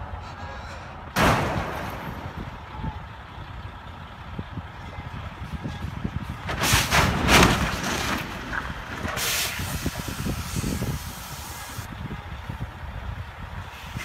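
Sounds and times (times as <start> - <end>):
wind rumble on microphone: 2.1 - 14.0
loud hissing bursts: 9.2 - 11.9.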